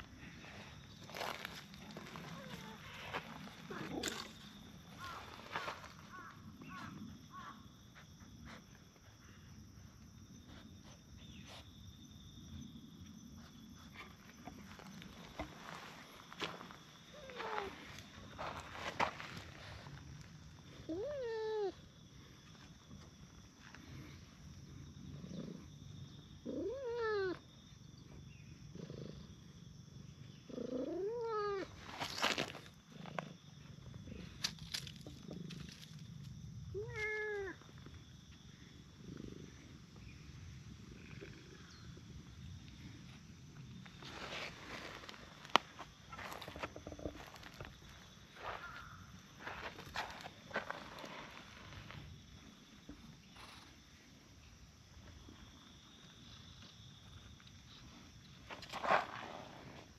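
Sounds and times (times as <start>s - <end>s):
high insect drone: 0.0s - 59.9s
cat meowing: 36.8s - 37.6s
cat purring: 40.8s - 41.7s.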